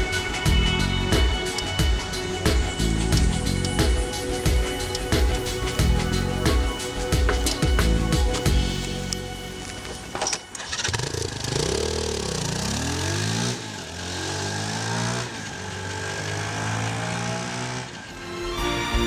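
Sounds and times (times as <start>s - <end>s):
motorcycle engine revving and pulling away: 9.9s - 18.2s.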